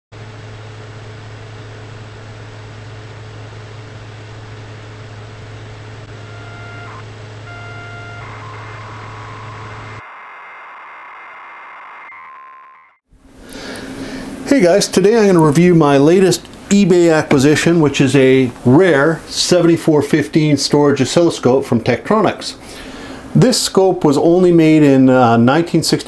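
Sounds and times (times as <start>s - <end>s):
electrical hum: 0.2s - 26.0s
steady beep tone: 6.1s - 10.1s
short electronic beeps: 6.2s - 10.0s.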